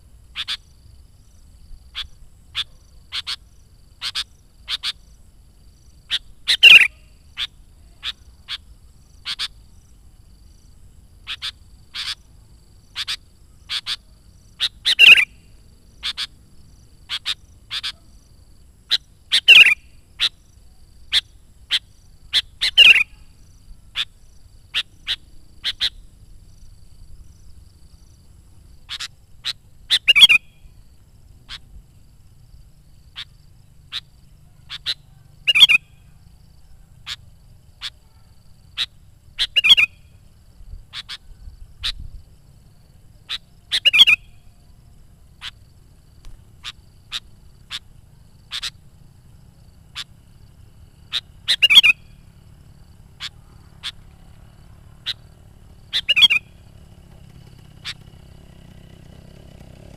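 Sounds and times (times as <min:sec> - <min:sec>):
bulbul singing: 0:05.9 - 0:09.6, 0:11.2 - 0:18.3, 0:18.9 - 0:28.2, 0:28.8 - 0:31.7, 0:33.1 - 0:40.3, 0:43.1 - 0:44.7, 0:49.8 - 0:54.4, 0:55.0 - 0:57.0.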